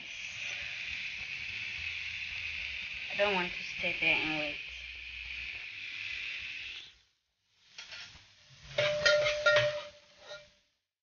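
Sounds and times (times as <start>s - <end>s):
food sizzling in a frying pan: 0.0s - 10.8s
utensil knocking against pan: 8.8s - 10.4s.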